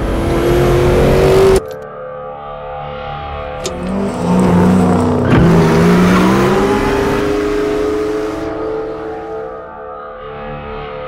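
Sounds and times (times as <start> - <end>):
car engine revving: 0.0 - 1.8, 3.5 - 9.8.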